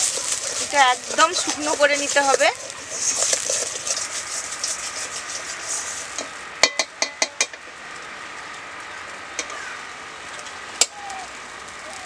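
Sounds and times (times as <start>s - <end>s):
metal spatula scraping wok: 0.0s - 6.4s
light sizzle: 0.0s - 12.0s.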